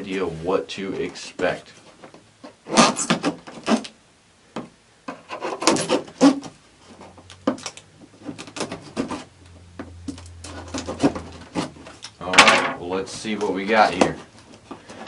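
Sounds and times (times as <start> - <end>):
blade scraping packing tape: 2.7 - 4.0, 5.2 - 6.5, 7.6 - 9.3.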